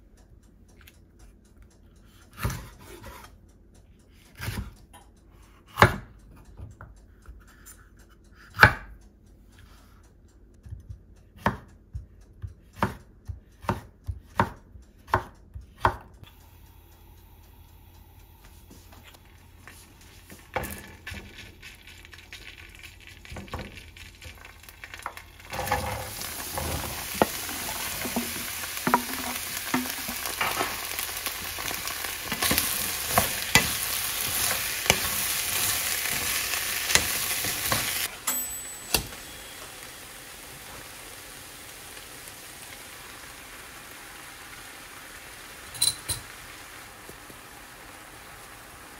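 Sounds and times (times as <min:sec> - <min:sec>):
knife chopping on wooden board: 0:12.8 - 0:13.0, 0:13.6 - 0:16.0
stirring clicks: 0:19.2 - 0:38.1
vegetables sizzling in a frying pan: 0:20.2 - 0:48.9.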